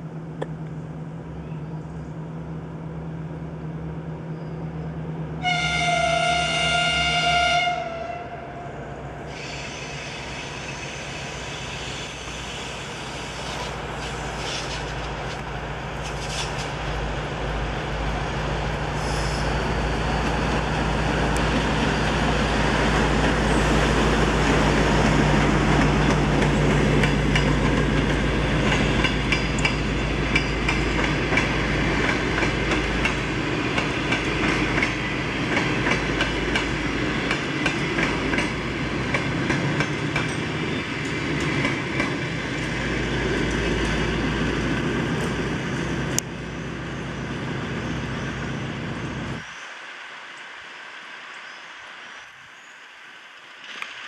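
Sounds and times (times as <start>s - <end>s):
diesel locomotive engine drone: 0.0s - 54.0s
train wheels clacking over rail joints: 25.7s - 42.8s.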